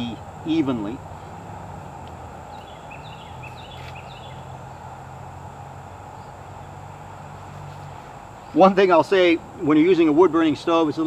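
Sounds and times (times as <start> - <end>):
steady low hum: 0.0 - 11.0
bird chirping: 1.0 - 5.2, 6.1 - 6.9.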